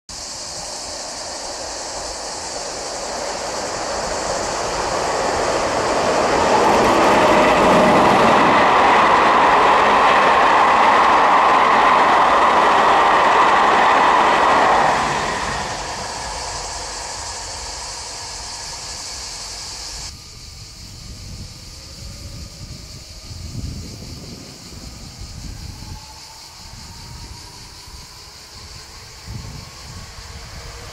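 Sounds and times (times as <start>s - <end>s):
train wheels clicking over rails: 0.1s - 20.1s.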